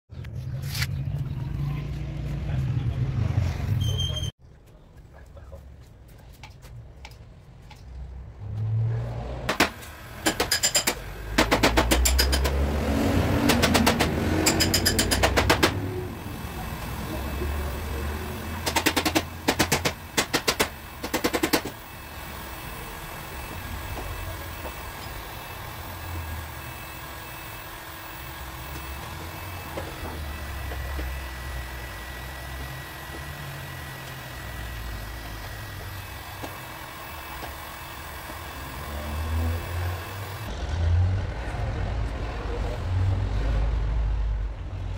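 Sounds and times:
low workshop rumble: 0.2s - 44.9s
hammer tapping on sheet metal: 9.5s - 12.6s, 13.4s - 15.8s, 18.6s - 21.8s.

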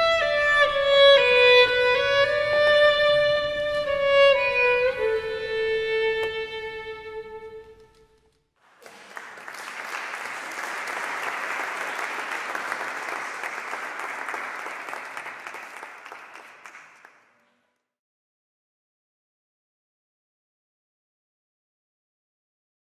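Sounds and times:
audience applauding: 8.6s - 17.5s.

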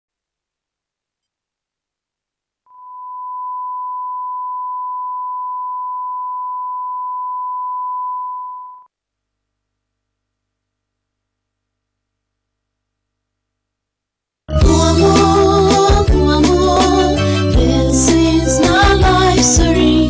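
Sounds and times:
steady test tone beep: 2.7s - 8.9s.

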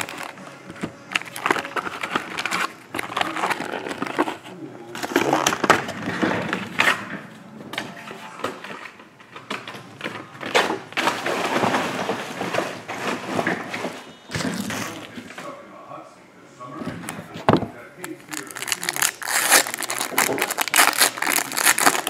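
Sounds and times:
foil packs and cardboard crinkling: 0.0s - 6.5s, 10.0s - 15.6s, 18.0s - 22.0s.

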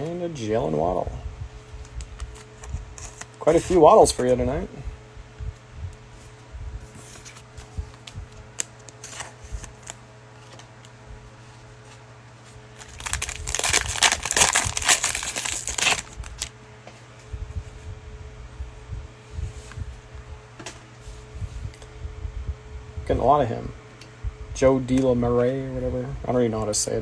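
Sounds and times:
plastic wrapper crinkling: 12.7s - 16.5s
plastic wrapper ripping: 12.8s - 16.5s.

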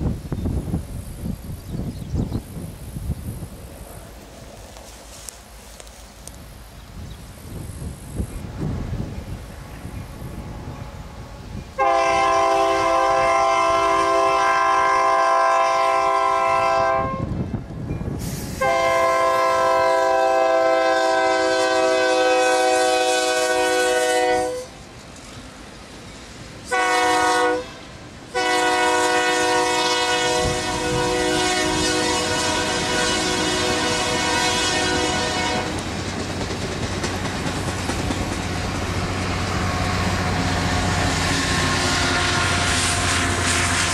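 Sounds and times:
train rumbling on rails: 0.0s - 43.9s
locomotive air horn blasts: 11.8s - 17.4s, 18.4s - 24.8s, 26.6s - 35.8s, 39.7s - 43.9s.

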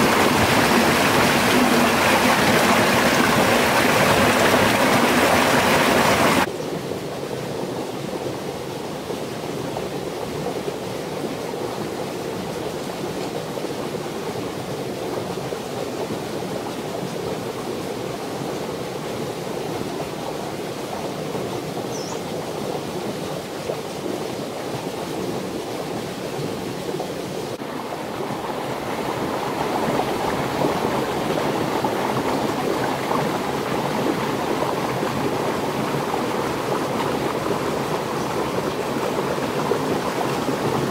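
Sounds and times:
rushing stream water: 0.0s - 40.9s.

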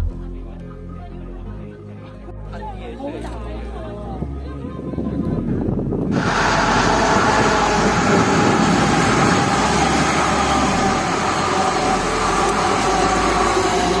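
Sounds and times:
train wheels rushing on rails: 6.1s - 14.0s.

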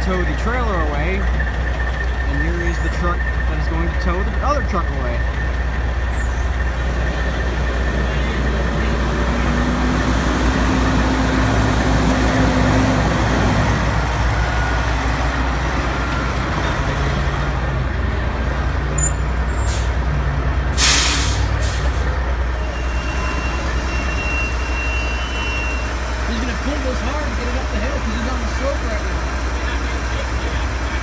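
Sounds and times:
diesel truck engine running: 0.0s - 31.0s
air brake hiss: 20.8s - 22.0s.

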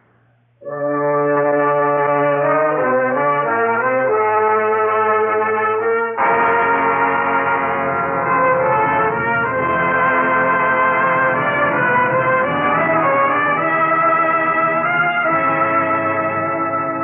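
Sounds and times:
brass orchestral chords: 0.6s - 17.0s.

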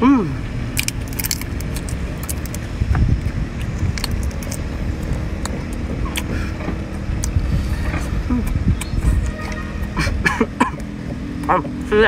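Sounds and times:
steady low rumble: 0.0s - 12.0s
prawn shell cracking: 0.8s - 6.3s.

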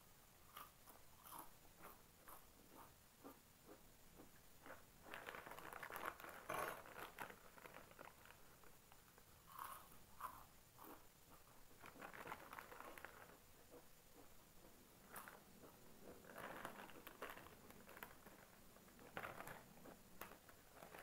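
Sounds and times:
chips being chewed: 0.5s - 8.7s, 9.4s - 21.0s
chip packet rustling: 5.0s - 8.8s, 11.8s - 13.4s, 16.2s - 21.0s.

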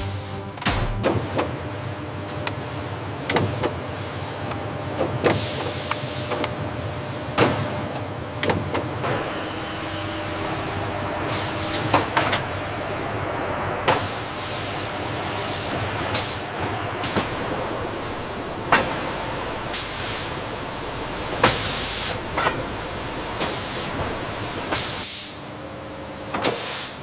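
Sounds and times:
machine hum: 0.0s - 24.7s
machinery clicks and clanks: 0.0s - 27.0s.

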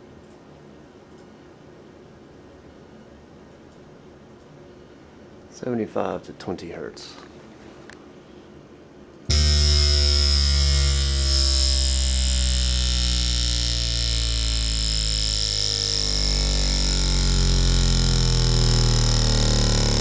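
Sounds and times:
harsh metallic buzzing rattle: 9.3s - 20.0s
subwoofer falling sine sweep: 9.3s - 20.0s.

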